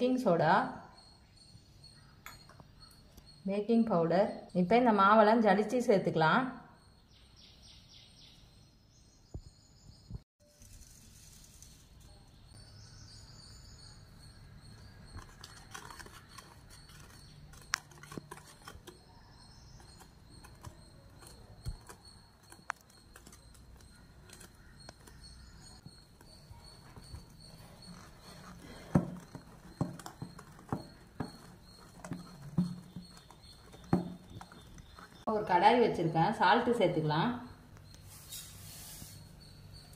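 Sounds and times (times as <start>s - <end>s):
flour sifted through sieve: 10.4s - 12.2s, 38.0s - 39.3s.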